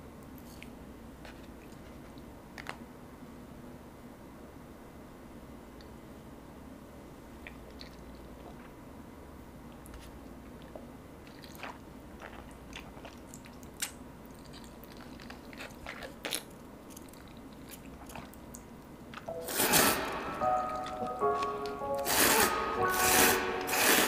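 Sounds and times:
slurping and chewing noodles: 0:09.9 - 0:18.7, 0:19.5 - 0:20.1, 0:22.0 - 0:24.0
music tones: 0:19.2 - 0:24.0.

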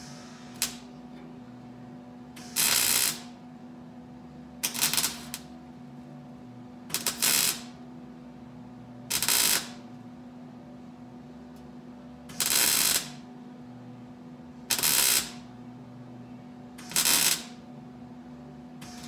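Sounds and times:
welder arc crackling: 0:00.0 - 0:01.0, 0:02.4 - 0:03.4, 0:04.6 - 0:05.5, 0:06.9 - 0:07.8, 0:09.1 - 0:09.9, 0:12.3 - 0:13.3, 0:14.7 - 0:15.5, 0:16.8 - 0:17.6.

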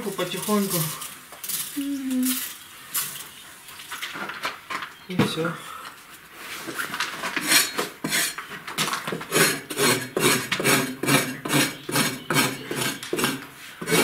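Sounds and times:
blade scraping plaster off wall: 0:07.2 - 0:08.5, 0:09.1 - 0:14.0.

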